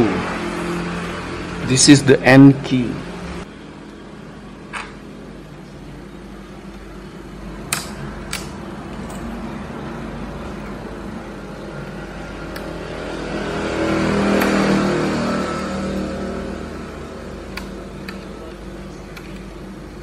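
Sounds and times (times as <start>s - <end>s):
steady drone: 7.0s - 20.0s.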